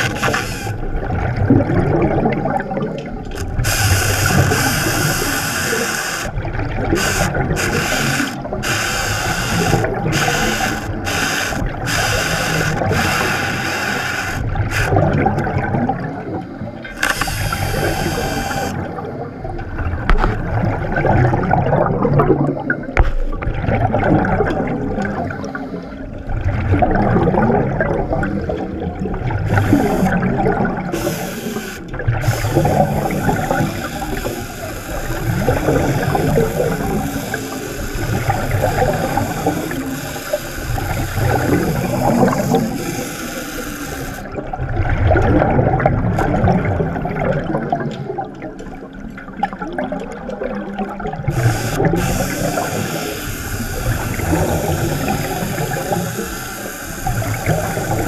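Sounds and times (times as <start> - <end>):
underwater bubbling: 0.0 - 58.0
steady hiss: 3.5 - 14.9, 17.0 - 18.8, 31.0 - 44.3, 51.4 - 58.0.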